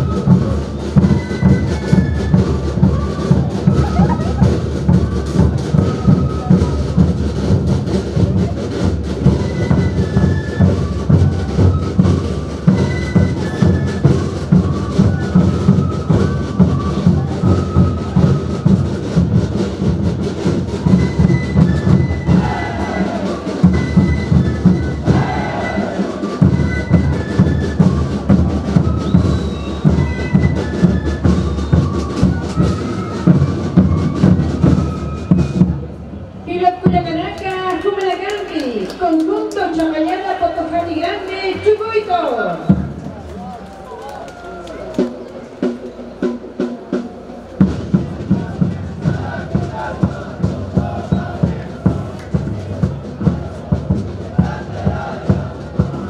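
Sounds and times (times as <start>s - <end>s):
fast drumbeats: 0.0s - 35.9s, 42.5s - 43.8s, 44.6s - 56.0s
piping wind melody: 0.0s - 56.0s.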